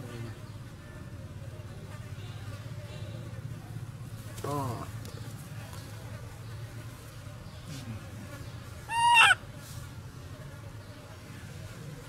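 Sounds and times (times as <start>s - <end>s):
baby monkey crying: 8.9s - 9.4s.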